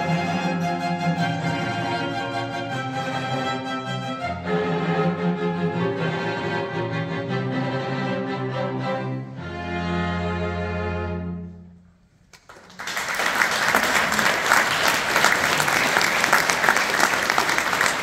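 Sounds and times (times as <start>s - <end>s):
audience applauding: 12.3s - 18.0s.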